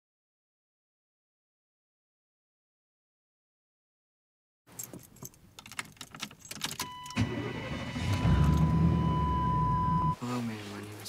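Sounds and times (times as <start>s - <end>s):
keys rattling: 4.7s - 7.0s
car engine starting and running: 5.6s - 10.2s
high warning tone: 6.8s - 10.2s.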